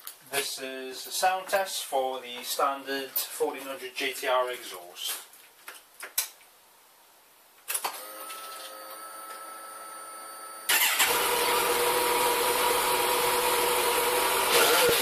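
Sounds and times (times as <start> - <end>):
starter motor whine: 7.9 - 15.0.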